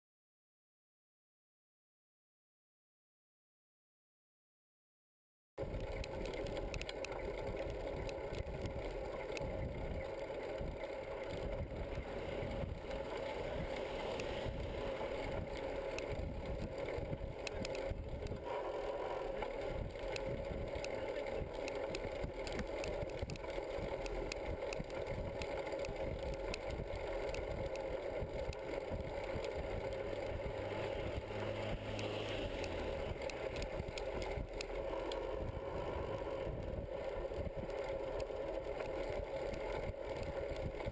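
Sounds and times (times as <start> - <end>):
road noise: 5.6 - 40.9
wind noise: 5.6 - 40.9.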